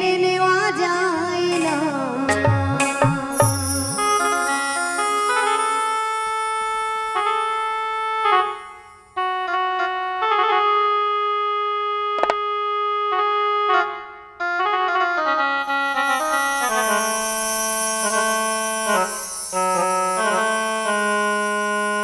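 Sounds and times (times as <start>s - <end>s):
electronic keyboard melody: 1.5s - 22.0s
sharp click: 12.2s - 12.4s.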